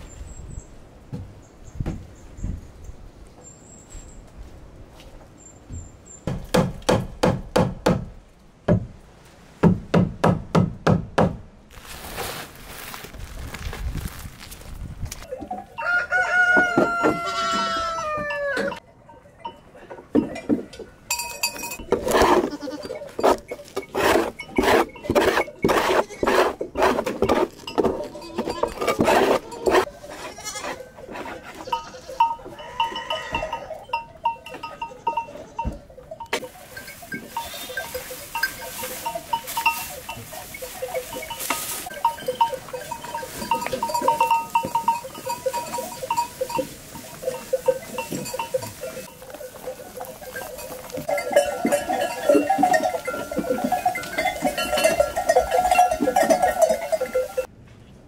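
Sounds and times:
animals rustling and knocking: 1.1 - 7.2, 11.9 - 57.5
goats bleating: 16.5 - 18.8, 22.0 - 23.2, 28.0 - 33.9.

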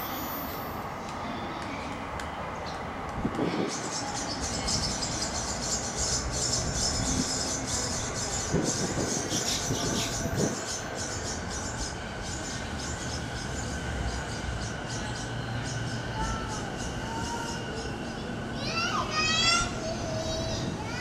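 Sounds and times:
electric train arriving: 0.0 - 21.0
wheel and rail noise: 0.0 - 21.0.

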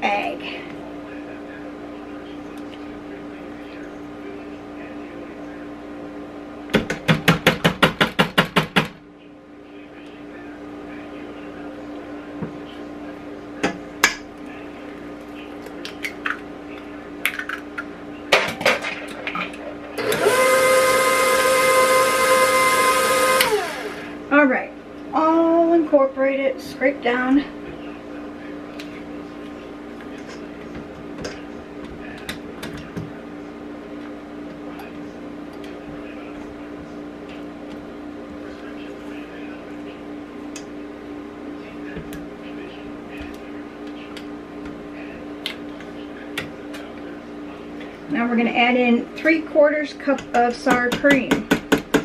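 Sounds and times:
steady hum: 0.0 - 52.0
stand mixer whining: 20.0 - 24.2.

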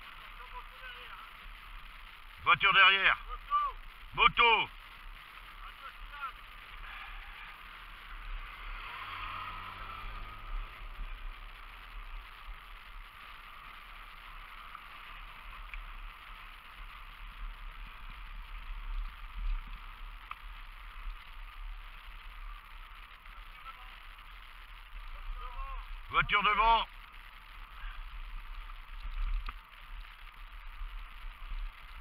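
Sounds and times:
bicycle tyres rolling on tarmac: 0.0 - 32.0
motorcycle engine passing: 6.4 - 15.6.

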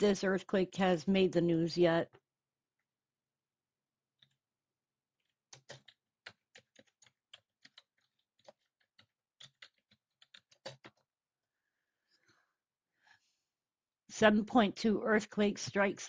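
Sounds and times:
computer keyboard typing: 5.2 - 11.0.

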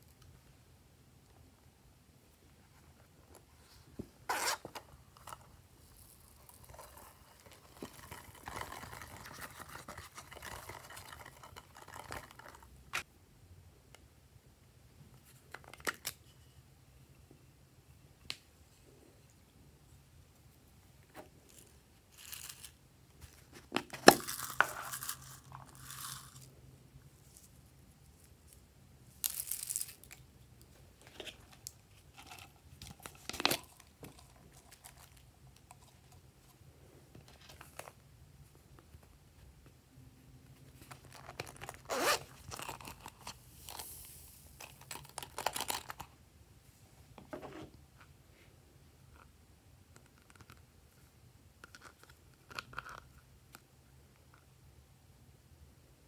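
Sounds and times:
faint steady hum: 0.0 - 56.0
beads pouring: 21.5 - 22.8, 24.0 - 26.5, 29.1 - 30.2, 42.4 - 46.0.

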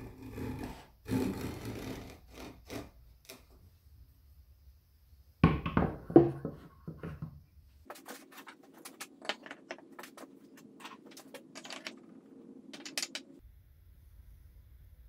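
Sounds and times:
wooden tools knocking on pegs: 8.8 - 13.4.

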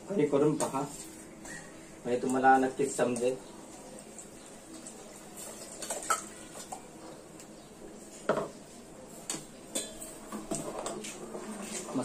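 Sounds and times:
metal utensils clinking on pot: 5.7 - 6.8, 9.3 - 11.0.

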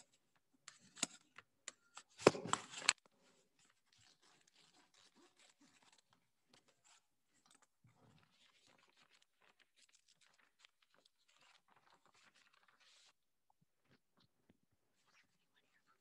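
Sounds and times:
paper rustling: 2.0 - 13.2
paper envelope tearing: 2.1 - 3.0.

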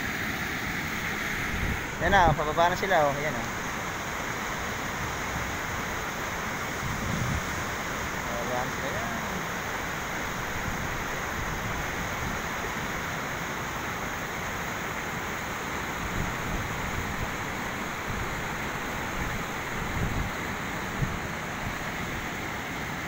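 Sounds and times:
river water rushing: 0.0 - 23.0
wind rumbling on microphone: 1.3 - 2.8, 6.7 - 8.4, 10.3 - 12.5, 16.0 - 22.3.

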